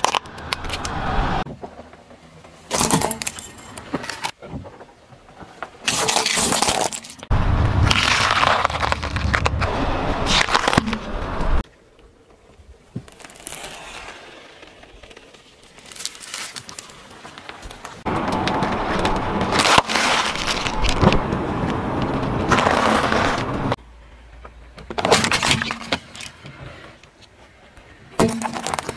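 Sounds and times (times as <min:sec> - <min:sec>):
vegetable stalk crunching: 0:13.1 - 0:14.3, 0:15.6 - 0:17.0
bag of chips crackling: 0:13.1 - 0:18.0, 0:18.8 - 0:21.1.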